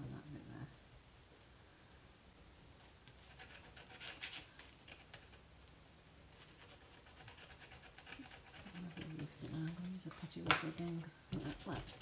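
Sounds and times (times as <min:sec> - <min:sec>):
tool tip scratching paper: 0:03.2 - 0:05.1, 0:06.4 - 0:09.8, 0:11.4 - 0:12.0.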